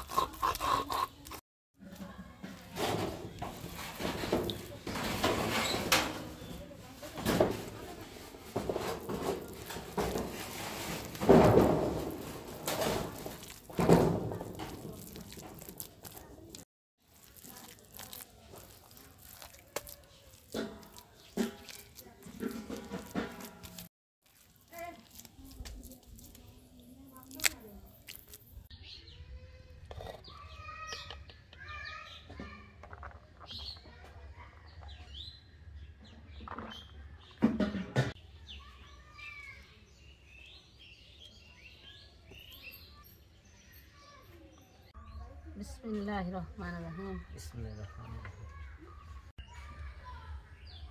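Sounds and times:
paste squishing under hands: 0:07.6 - 0:28.7
small birds chirping: 0:11.6 - 0:37.5, 0:38.2 - 0:50.9.

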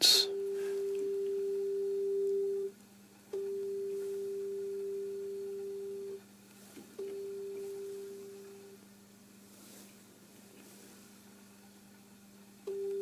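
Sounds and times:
steady sine tone: 0:03.4 - 0:06.2, 0:07.0 - 0:08.8.

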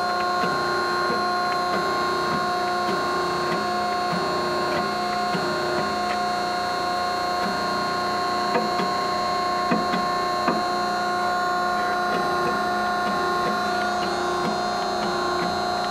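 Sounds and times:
hydraulic pump hum and whine: 0:00.0 - 0:15.9.

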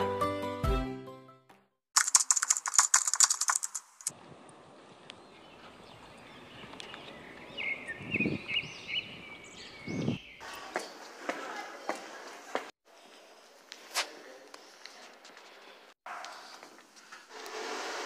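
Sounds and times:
keyboard key clicks: 0:02.0 - 0:04.1.

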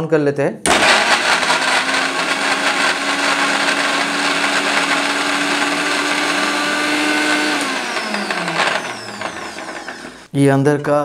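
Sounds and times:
mixer grinder motor running: 0:00.7 - 0:10.3.

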